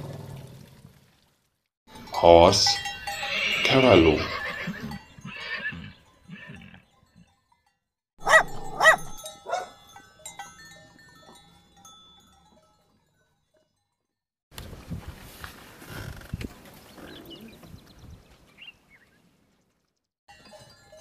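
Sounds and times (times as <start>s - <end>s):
dog barking: 8.2s - 9.8s
faint horse sounds: 15.1s - 19.8s.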